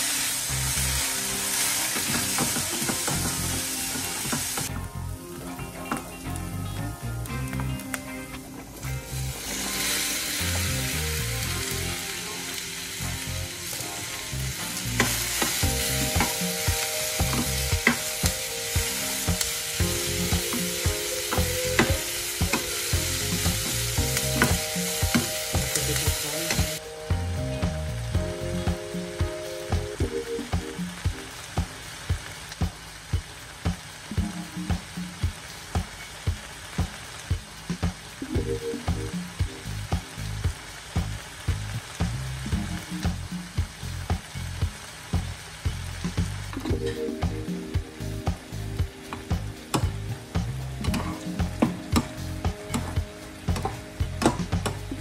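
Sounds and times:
spatula stirring strokes: 0.0s - 4.8s, 8.6s - 26.8s
vegetables sizzling in a frying pan: 0.0s - 55.0s.

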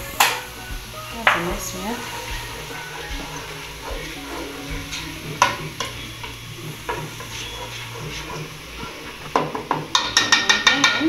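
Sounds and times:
low sizzle: 0.0s - 11.0s
spatula scraping a frying pan: 0.0s - 11.0s.

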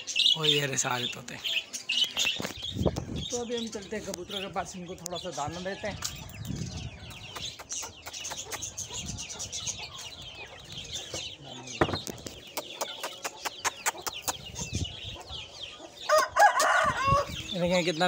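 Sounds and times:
birds chirping: 0.0s - 18.0s
chickens clucking: 3.9s - 18.0s.

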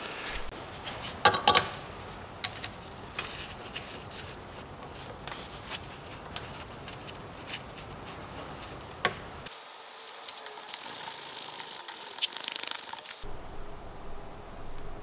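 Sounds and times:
light metallic clinks and knocks: 1.2s - 3.6s.

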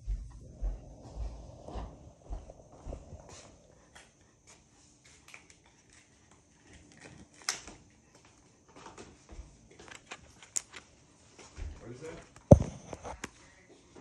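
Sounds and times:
plastic sleeve pages clicking and rustling: 9.8s - 10.9s.

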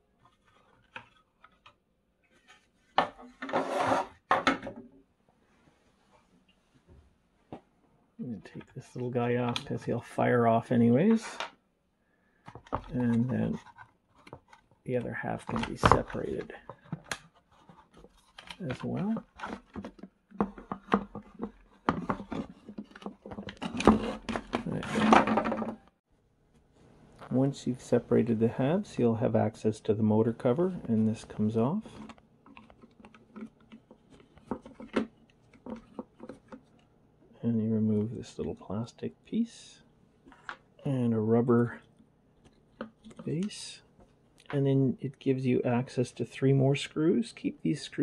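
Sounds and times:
plastic scraping and rubbing: 0.2s - 4.3s, 12.5s - 25.9s, 30.6s - 36.9s
plastic clicks and knocks: 19.2s - 25.8s.

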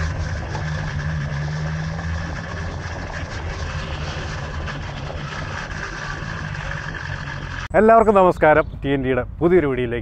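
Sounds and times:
motorcycle engine running: 0.0s - 7.7s
road and wind noise: 0.0s - 10.0s.

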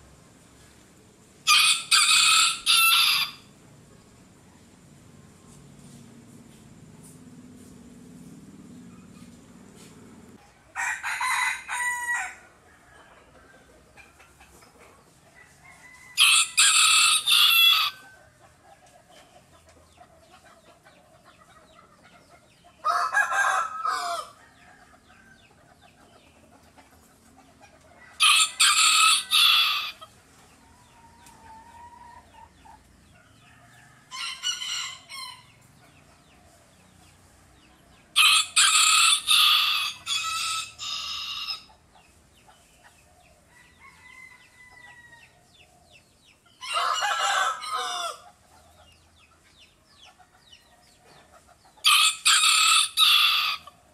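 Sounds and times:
rooster crowing: 1.4s - 3.5s, 10.7s - 13.3s, 15.3s - 18.4s, 22.8s - 25.5s, 28.0s - 30.1s, 33.3s - 35.6s, 38.2s - 41.7s, 43.5s - 45.5s, 46.6s - 48.4s, 51.8s - 53.8s.

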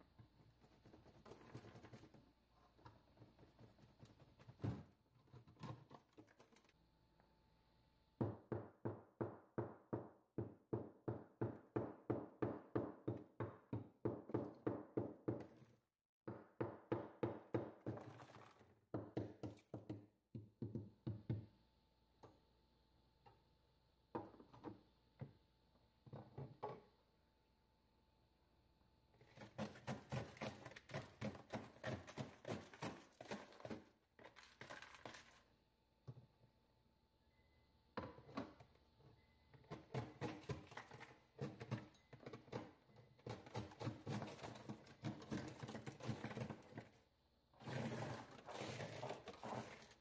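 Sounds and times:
metal tool chipping ice: 29.4s - 33.8s.

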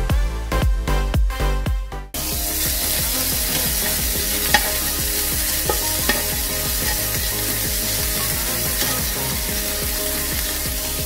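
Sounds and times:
bacon sizzling in a frying pan: 2.2s - 11.0s
spatula tapping a pan: 3.4s - 10.0s.

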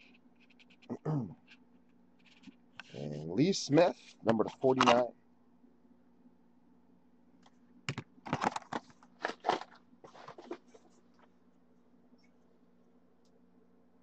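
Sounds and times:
packaging crinkling and plastic clicking: 7.9s - 10.9s.

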